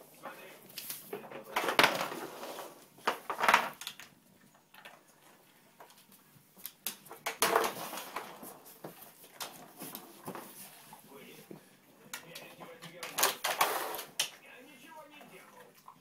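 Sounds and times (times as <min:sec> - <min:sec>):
plastic puzzle pieces clattering: 0:12.8 - 0:14.3.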